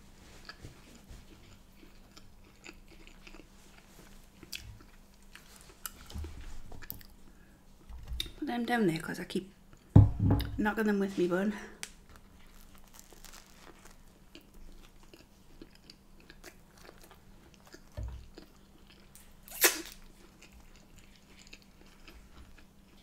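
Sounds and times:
wet chewing with crunches: 0.2 - 7.2, 11.8 - 23.0
low thump: 10.0 - 10.6.

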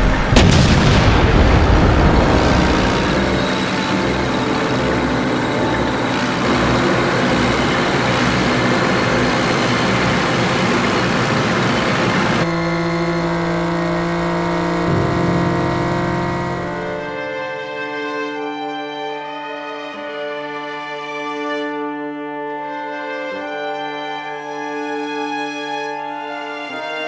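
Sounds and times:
tank engine sound effect: 0.0 - 17.7
slow music with held notes: 14.7 - 27.0.

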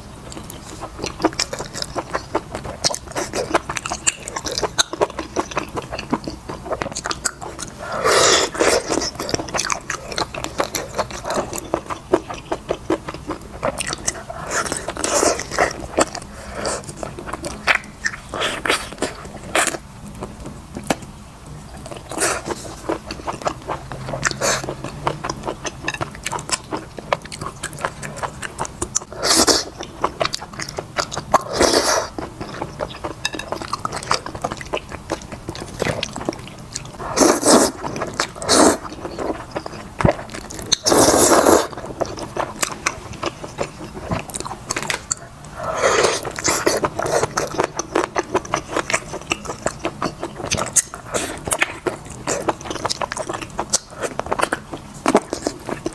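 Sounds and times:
noodle slurps: 37.0 - 37.8, 38.4 - 38.8, 40.8 - 41.7.

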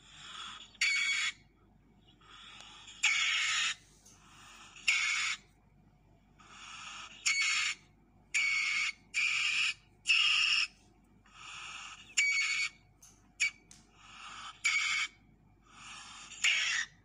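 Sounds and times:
civet raspy hissing screeches: 11.3 - 12.8.

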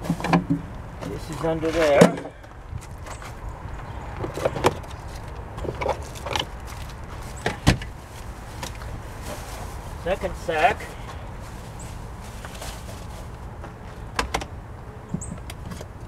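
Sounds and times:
belongings being rummaged: 0.0 - 3.4.

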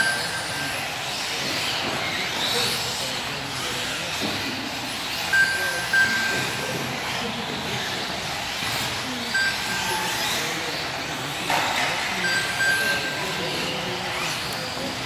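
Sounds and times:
short high beeps: 0.0 - 0.9, 5.3 - 6.9, 9.3 - 10.3, 12.2 - 13.8
electric motors whining: 0.0 - 15.0.

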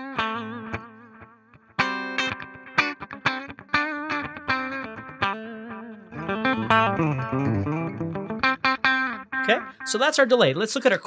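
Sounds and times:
clean electric guitar with delay: 0.0 - 10.0.

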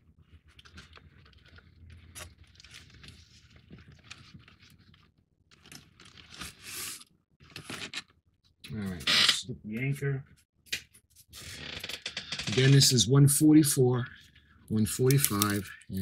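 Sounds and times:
cardboard model handling clicks: 15.1 - 15.6.

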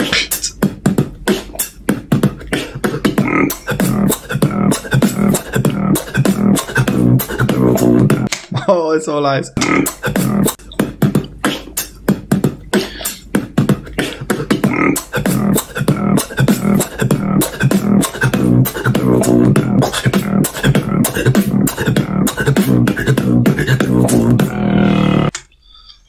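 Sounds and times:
hummed bass line: 0.0 - 8.3, 9.6 - 25.4
person beatboxing: 0.0 - 8.3, 9.6 - 25.3.

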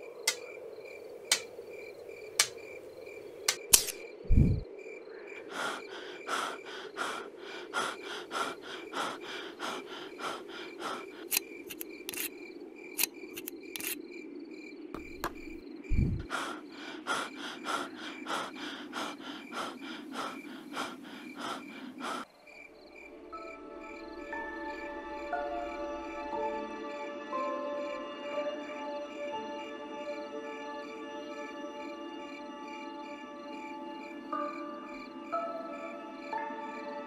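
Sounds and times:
crickets chirring: 0.0 - 37.0
sharp clicks: 0.2 - 0.5, 2.4 - 2.6, 3.5 - 4.0
boy panting fast: 5.5 - 11.4, 15.9 - 22.3.

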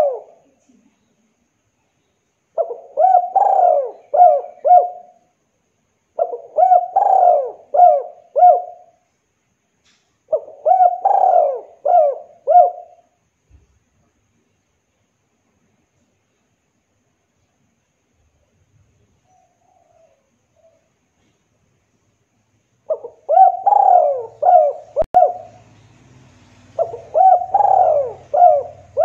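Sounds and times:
dove cooing: 0.0 - 0.5, 2.6 - 5.2, 6.2 - 9.0, 10.3 - 13.2, 22.9 - 25.8, 26.7 - 29.0.

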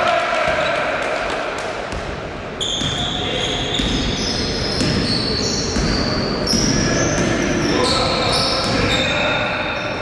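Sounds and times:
voices in a hall: 0.0 - 10.0
sneakers squeaking on floor: 2.6 - 10.0
basketball bouncing: 3.7 - 6.1.

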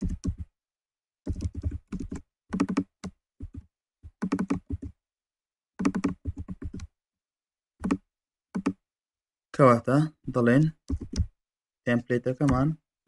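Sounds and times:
computer keyboard typing: 0.0 - 0.5, 1.3 - 5.0, 5.8 - 6.9, 7.8 - 8.8, 10.9 - 11.4, 12.4 - 12.8.

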